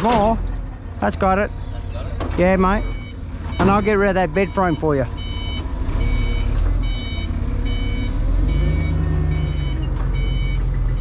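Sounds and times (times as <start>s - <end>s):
forklift engine running: 0.0s - 11.0s
reversing alarm beeping: 2.5s - 11.0s.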